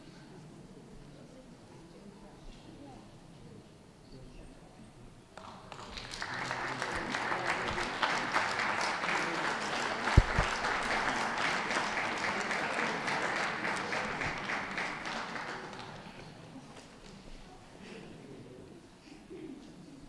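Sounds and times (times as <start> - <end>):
audience applauding: 5.4 - 16.2.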